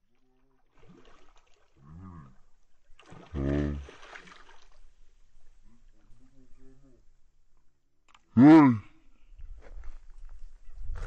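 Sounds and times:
fish thrashing and splashing: 3.0s - 4.8s
person calling out loudly: 8.4s - 8.9s.

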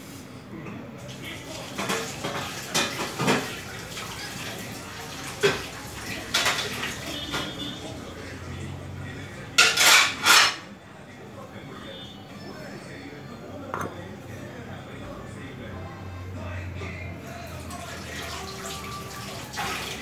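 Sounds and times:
metal pots clattering: 9.6s - 10.6s.

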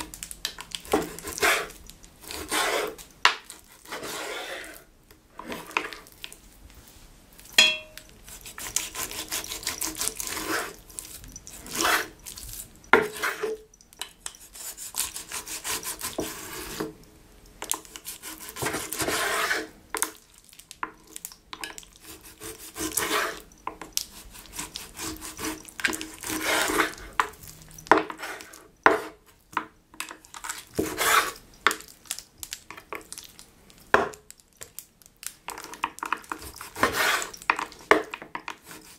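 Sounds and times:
knife sawing through meat: 2.3s - 4.8s, 8.3s - 10.8s, 14.5s - 16.6s, 22.0s - 23.4s, 24.1s - 27.0s, 36.7s - 37.4s.

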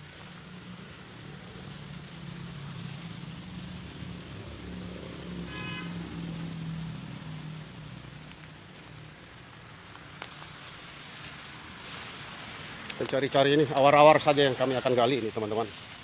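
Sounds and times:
vehicle engine humming: 0.0s - 16.0s
high-pitched call: 5.4s - 6.1s.

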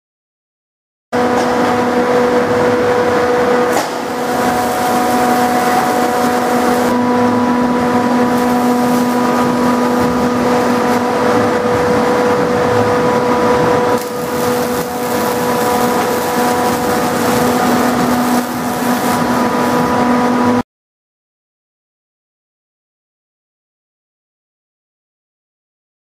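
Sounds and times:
loud machine drone: 1.2s - 20.6s.

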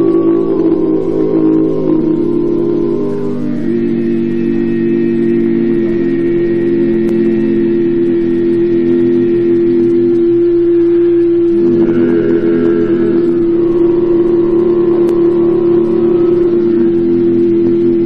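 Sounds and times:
male quartet singing in harmony: 11.6s - 17.6s.

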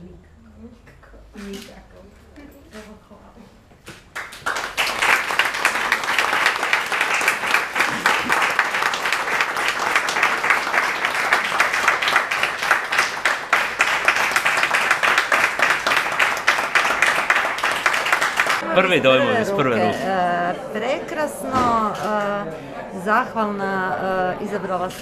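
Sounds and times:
audience applauding: 4.2s - 20.0s.

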